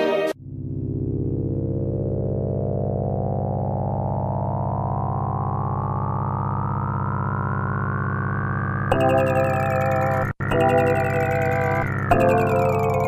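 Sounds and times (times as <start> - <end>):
music: 0.0 - 0.4, 8.9 - 13.0
synthesizer drone: 0.0 - 13.0.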